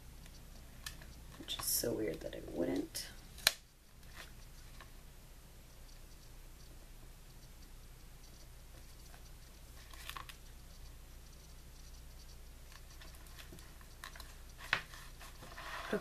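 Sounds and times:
low steady hum: 0.0s - 16.0s
fingers rubbing tape on paper: 5.8s - 16.0s
paper crinkle: 8.7s - 10.9s.

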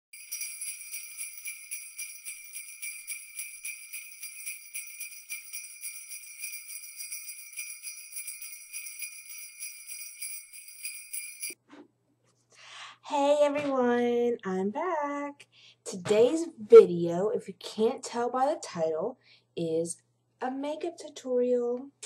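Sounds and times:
sleigh bells jingling: 0.1s - 11.6s.

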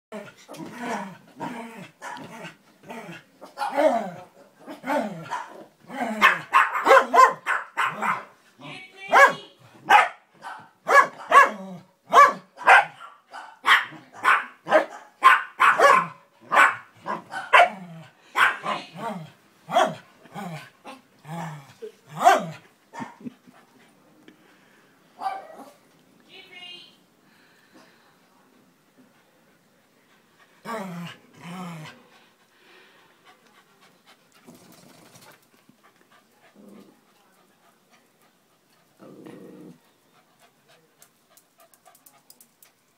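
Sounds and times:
dog growling: 0.1s - 6.5s, 30.6s - 32.0s, 34.4s - 35.3s, 36.5s - 37.0s, 38.9s - 40.0s
dog barking: 5.3s - 5.6s, 6.2s - 8.3s, 9.1s - 17.8s, 18.4s - 18.8s, 19.7s - 20.0s, 22.2s - 23.2s, 25.2s - 25.8s
dog panting: 31.9s - 39.0s, 39.8s - 42.9s
dog grumbling: 39.0s - 39.9s.

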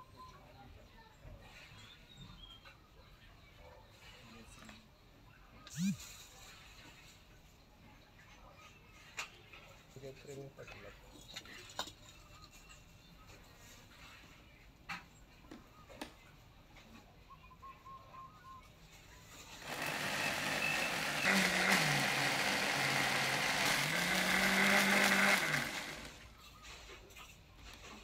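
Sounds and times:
blender motor grinding: 5.7s - 6.0s, 19.6s - 26.4s.

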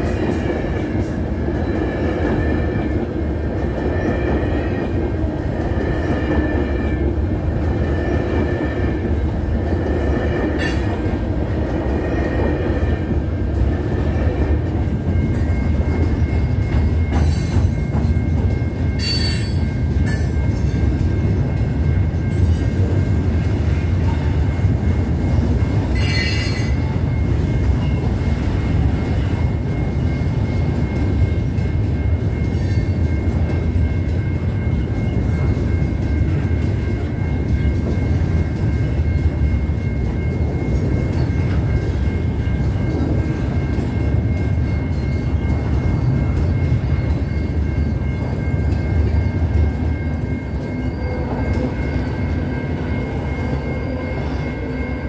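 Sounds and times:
crossing bell ringing: 0.0s - 55.0s
train wheels rumbling on rails: 0.0s - 55.0s
high wheel squeals: 25.9s - 26.9s.

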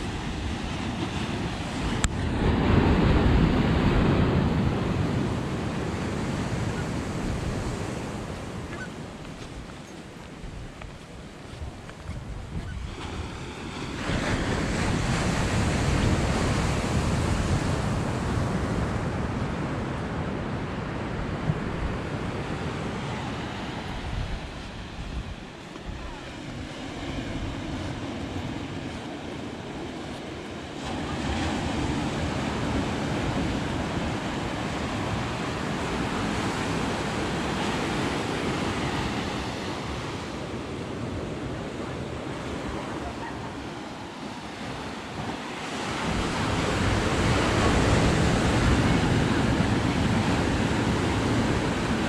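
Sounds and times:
surf breaking on beach: 12.2s - 52.0s.

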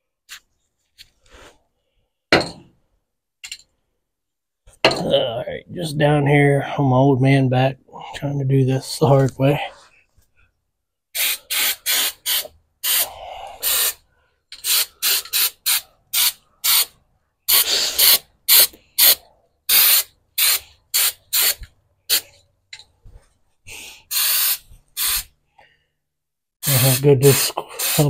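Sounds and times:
spray hissing bursts: 11.2s - 14.0s, 14.6s - 16.9s, 17.5s - 22.3s, 24.1s - 25.3s, 26.6s - 28.0s.

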